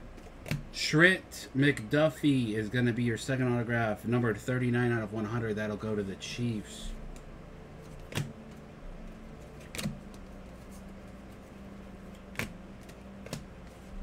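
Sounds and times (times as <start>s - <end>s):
faint steady hum: 0.0s - 14.0s
cards tapping on a table: 12.3s - 13.5s.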